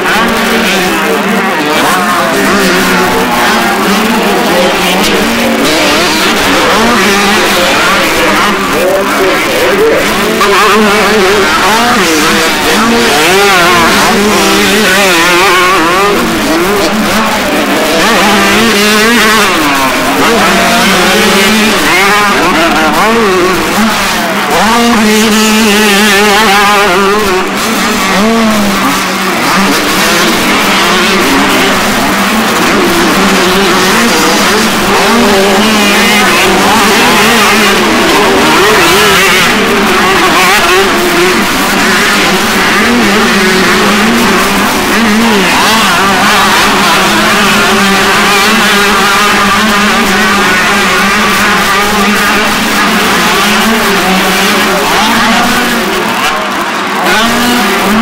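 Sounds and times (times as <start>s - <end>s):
dirt bike engines revving: 0.0s - 58.0s.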